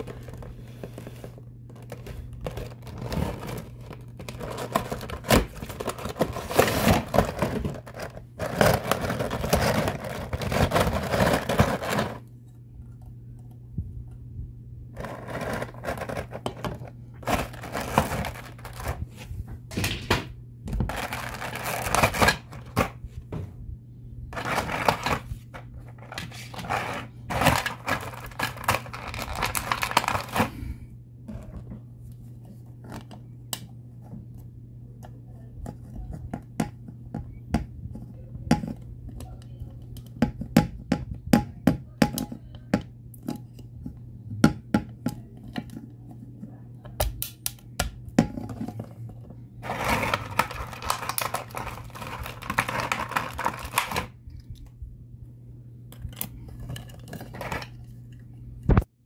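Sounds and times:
plastic packaging crinkling: 0.0 - 12.2, 15.0 - 19.1, 20.8 - 22.9, 26.0 - 30.6, 49.6 - 54.2
steady low hum: 0.0 - 59.0.

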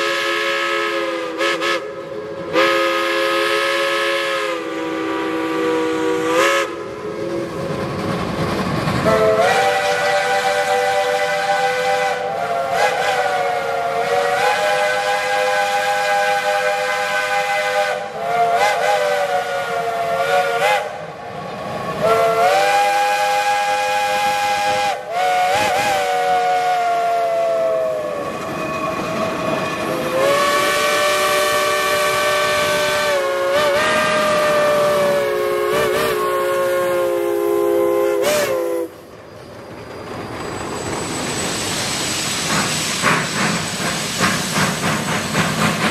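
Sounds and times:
steam hissing: 0.0 - 45.9
chime steam whistles blowing: 9.0 - 21.0, 21.8 - 45.4.

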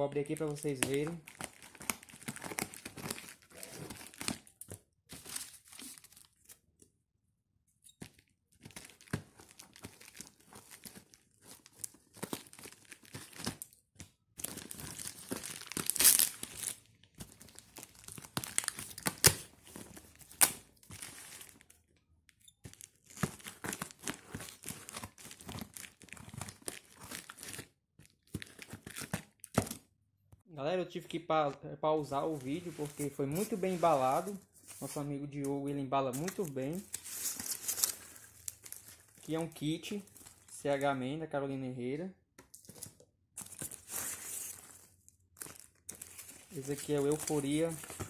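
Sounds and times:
plastic wrap crinkling and tearing: 0.1 - 6.6, 8.5 - 21.8, 22.6 - 29.8, 36.2 - 40.5, 43.4 - 48.0.

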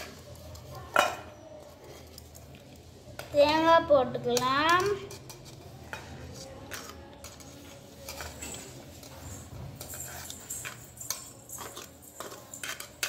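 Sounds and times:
spoon scraping metal plate: 4.3 - 13.0.

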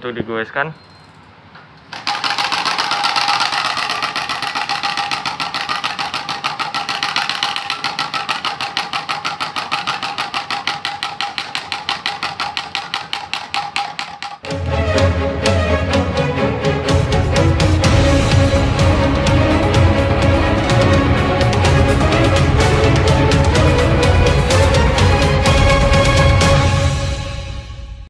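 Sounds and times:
card rattling against bicycle spokes: 1.9 - 14.4.

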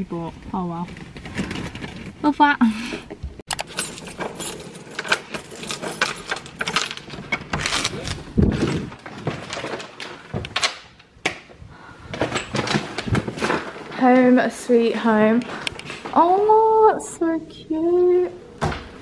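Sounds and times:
rustling and knocks of handling: 0.3 - 2.4, 3.0 - 16.6
keys jangling: 3.5 - 8.2.

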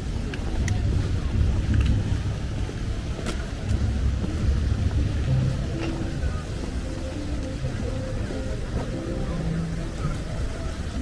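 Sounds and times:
low city rumble: 0.0 - 11.0.

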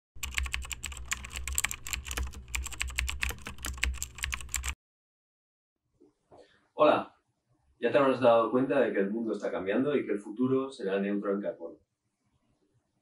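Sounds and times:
keyboard typing clicks: 0.2 - 4.8.

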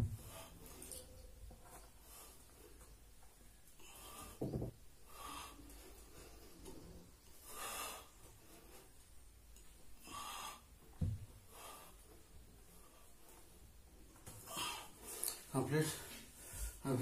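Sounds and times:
man breathing hard: 3.8 - 6.8
soft thump: 11.0 - 11.2.

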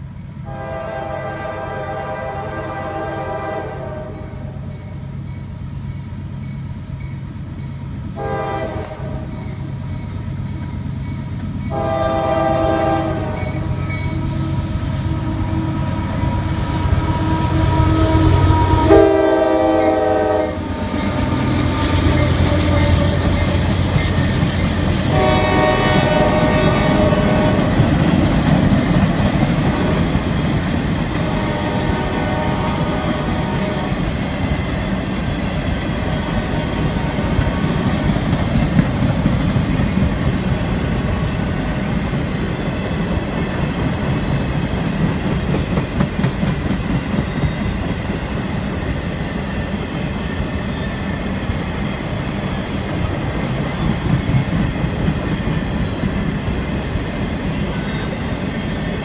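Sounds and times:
locomotive air horn blasts: 0.4 - 4.3, 8.2 - 9.3, 11.7 - 23.2, 25.0 - 27.8, 31.2 - 34.0
locomotive engine rumble: 9.4 - 42.3.

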